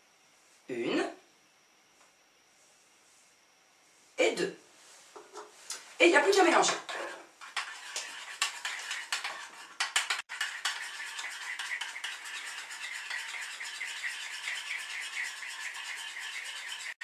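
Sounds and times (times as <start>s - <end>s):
spoon scraping ceramic bowl: 6.6s - 17.0s.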